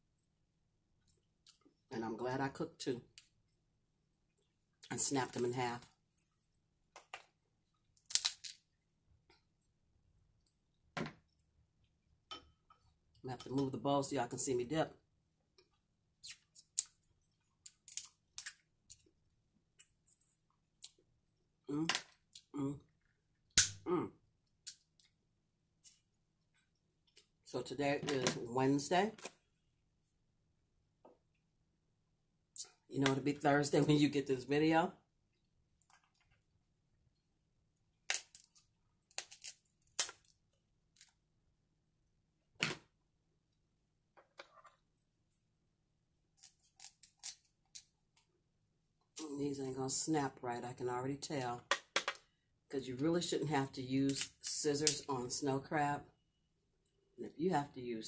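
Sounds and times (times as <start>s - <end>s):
crab shells cracking: 8.0s - 8.6s, 17.6s - 18.6s, 38.0s - 41.1s.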